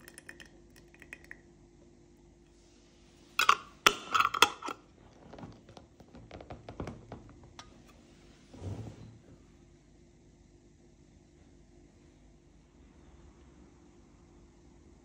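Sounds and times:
lid clicking as screwed tight: 0:03.4 - 0:04.8
metal lid clattering on glass jar: 0:03.4 - 0:04.8.

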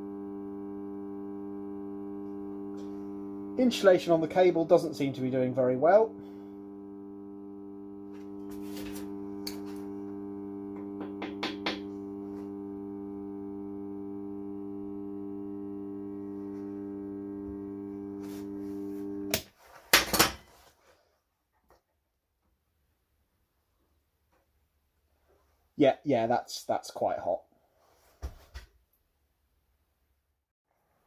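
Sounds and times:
transformer humming: 0:00.0 - 0:19.3.

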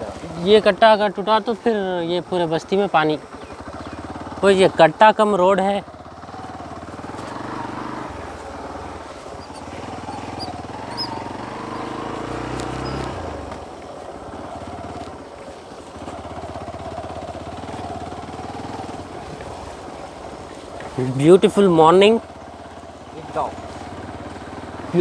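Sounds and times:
motorcycle engine running: 0:00.0 - 0:25.0
faint bird chirps: 0:03.3 - 0:04.2, 0:09.3 - 0:13.1.

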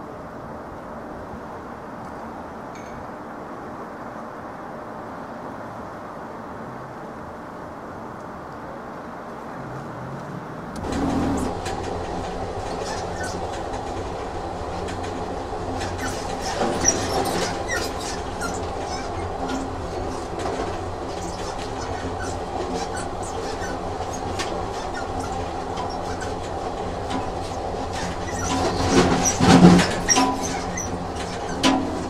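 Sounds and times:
train wheels clickety-clack: 0:10.2 - 0:32.0
high squeaks: 0:10.8 - 0:32.0.

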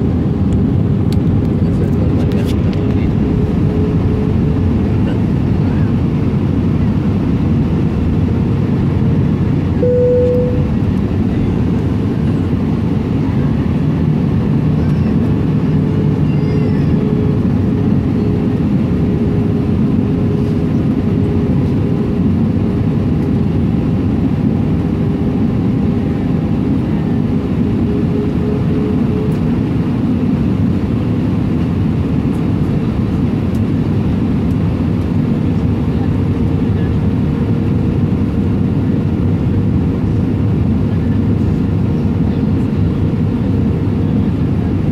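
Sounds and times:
aircraft engine and airflow rumble: 0:00.0 - 0:44.9
steady cabin hum: 0:09.0 - 0:12.6.

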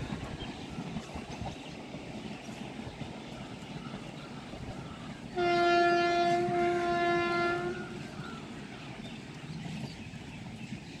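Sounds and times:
low train rumble: 0:00.0 - 0:11.0
train horn blast: 0:05.4 - 0:08.2.

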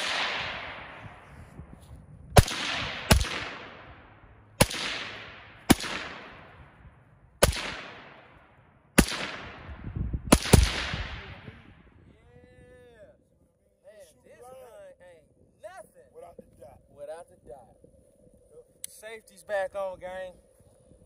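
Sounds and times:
rifle shots with echo: 0:00.0 - 0:01.4, 0:02.4 - 0:11.8.

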